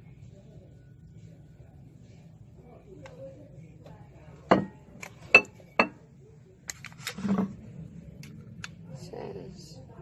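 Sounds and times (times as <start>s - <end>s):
ceramic dish knocking on surfaces: 4.5s - 6.0s.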